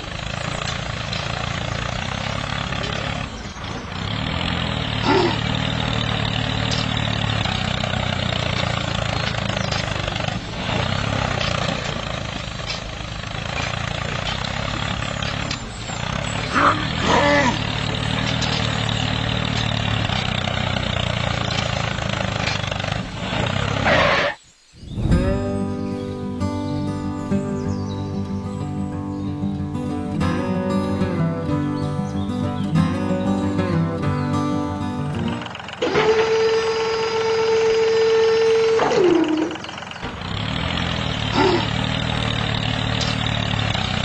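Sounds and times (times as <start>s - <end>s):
tractor engine rumbling: 0.0s - 44.0s.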